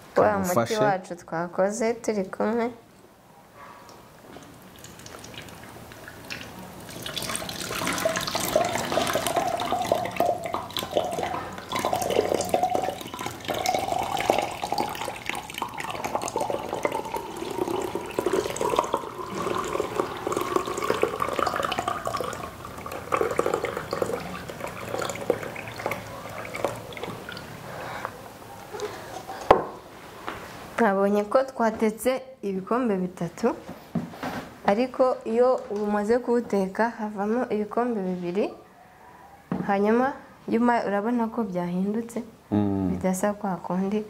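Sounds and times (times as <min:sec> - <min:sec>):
liquid splashing and trickling: 0:04.4 - 0:27.9
liquid pouring into a plastic jug: 0:04.6 - 0:27.6.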